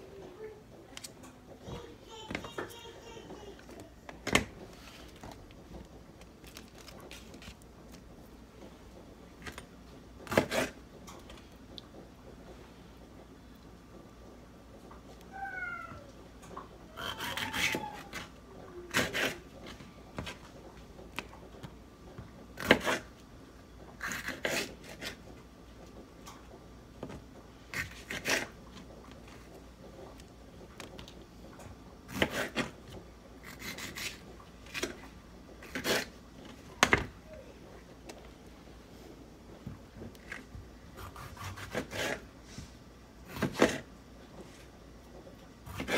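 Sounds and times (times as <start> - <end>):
knife slicing vegetables: 10.2 - 10.8, 17.0 - 19.5, 22.6 - 23.2, 24.0 - 25.2, 27.7 - 28.6, 32.1 - 32.8, 33.4 - 35.0, 35.6 - 36.2, 41.0 - 42.3, 43.2 - 43.9, 45.6 - 45.9.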